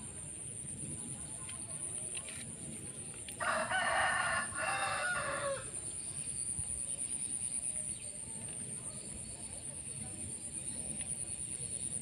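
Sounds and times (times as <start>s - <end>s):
rooster crowing: 3.4s - 5.7s.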